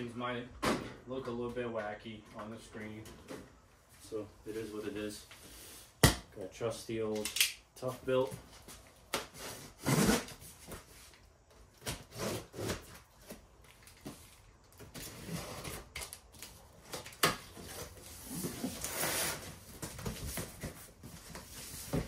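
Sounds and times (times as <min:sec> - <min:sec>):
knife slicing packing tape: 0:11.8 - 0:12.9.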